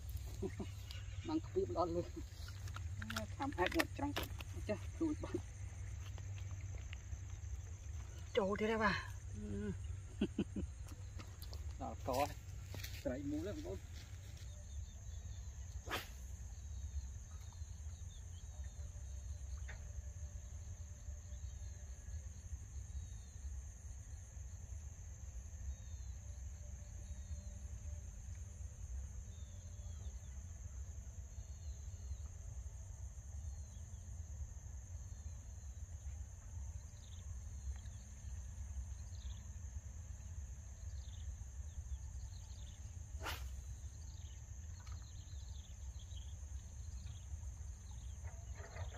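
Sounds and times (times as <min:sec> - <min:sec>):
short bird chirps: 0:43.2 - 0:43.7.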